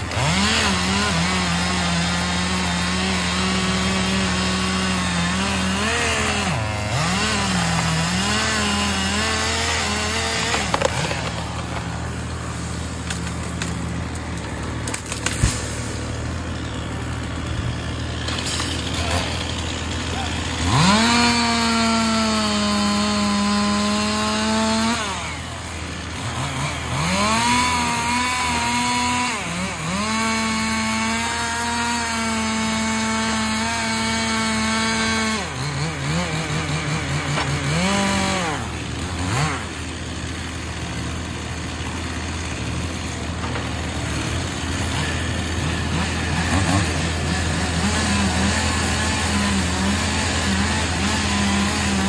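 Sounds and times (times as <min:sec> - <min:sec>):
truck engine hum: 0:00.0 - 0:31.8, 0:35.4 - 0:52.0
chainsaw cutting wood: 0:00.0 - 0:52.0.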